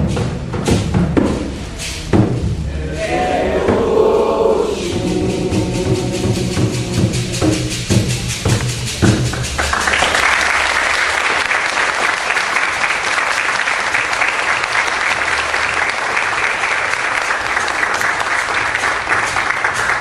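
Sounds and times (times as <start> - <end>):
percussion music: 0.0 - 20.0
audience applauding: 9.3 - 20.0.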